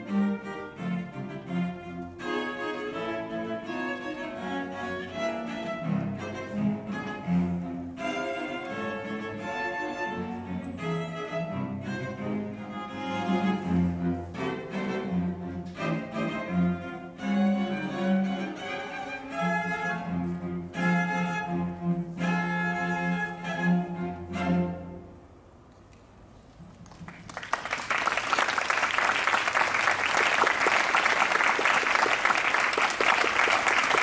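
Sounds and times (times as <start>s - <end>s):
cellos bowing: 0.0s - 25.5s.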